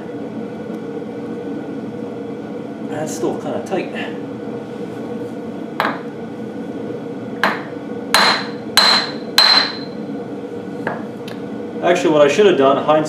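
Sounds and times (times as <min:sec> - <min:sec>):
hammer striking metal shaft: 0:07.4 - 0:09.9.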